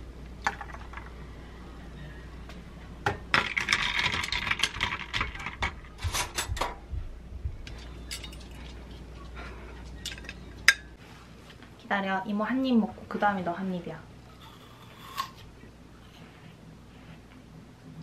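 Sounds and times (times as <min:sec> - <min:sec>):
ice and utensil clinking in glass: 0:03.3 - 0:05.7, 0:08.0 - 0:08.6.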